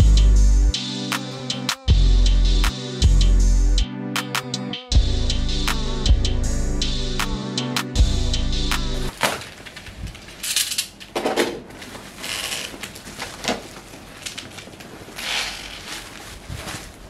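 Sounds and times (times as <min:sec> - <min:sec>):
background music: 0:00.0 - 0:09.1
plastic bag and bubble wrap crinkling: 0:09.1 - 0:10.4, 0:11.7 - 0:17.0.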